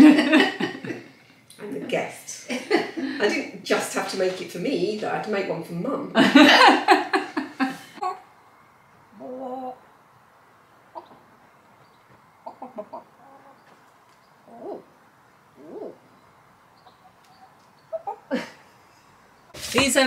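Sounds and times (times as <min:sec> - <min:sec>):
hens clucking: 0:10.6 - 0:19.5.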